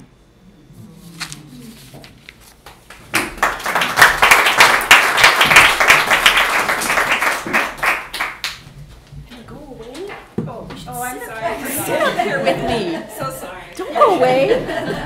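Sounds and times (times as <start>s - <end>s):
audience applauding: 2.7s - 8.6s.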